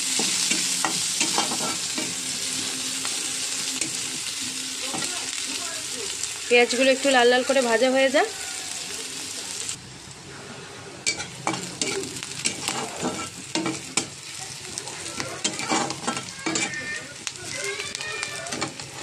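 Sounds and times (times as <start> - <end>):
onions sizzling in hot oil: 0.0 - 19.0
spatula scraping a pan: 0.1 - 2.8, 11.0 - 14.1, 14.8 - 17.0.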